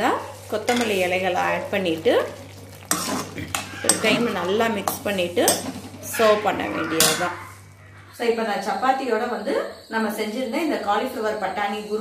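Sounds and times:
metal spatula scraping a pan: 2.8s - 7.7s.

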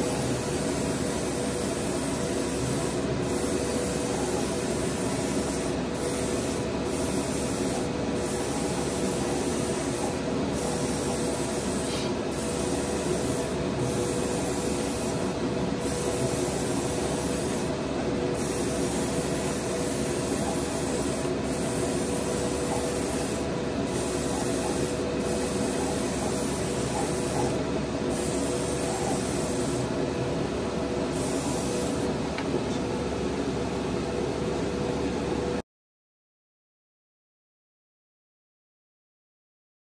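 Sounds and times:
paint spray gun hissing: 0.0s - 29.9s, 31.1s - 32.1s.

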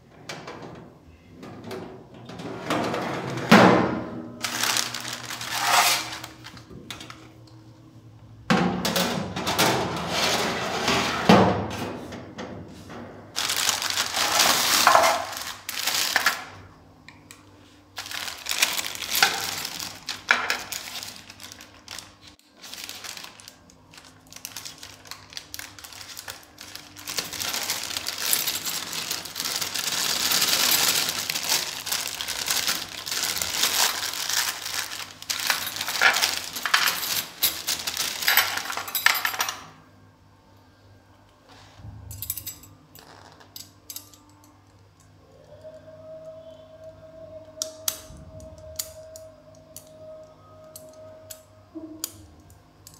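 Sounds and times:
plastic wrapping crinkling: 4.4s - 6.7s, 13.4s - 16.5s, 18.0s - 39.2s.

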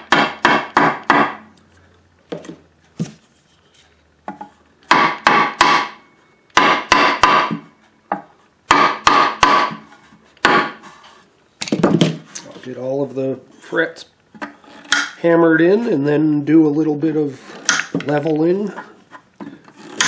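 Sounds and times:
hammer knocking on wood block: 0.0s - 1.4s, 4.9s - 6.0s, 6.6s - 9.8s, 10.4s - 10.8s.

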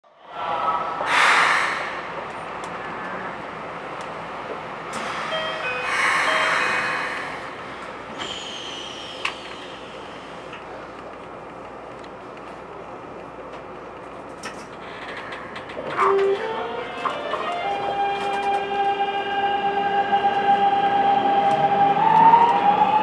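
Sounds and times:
air hiss burst: 1.1s - 2.2s, 5.0s - 10.2s
train inverter musical tones: 5.0s - 9.6s, 15.8s - 23.0s.

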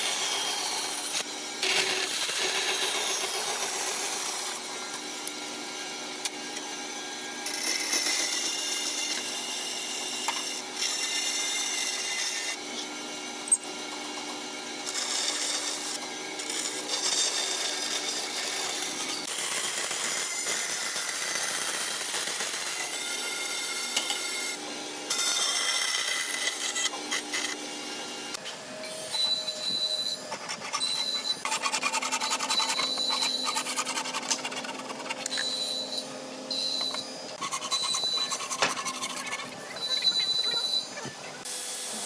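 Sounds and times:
bandsaw cutting wood: 0.0s - 42.0s
bandsaw motor hum: 0.0s - 42.0s.

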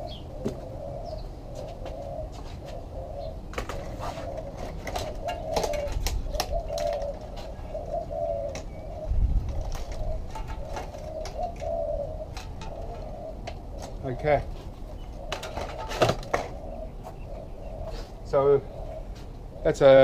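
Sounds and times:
dove cooing: 0.0s - 20.0s
clicks and knocks of handling: 9.5s - 11.7s.

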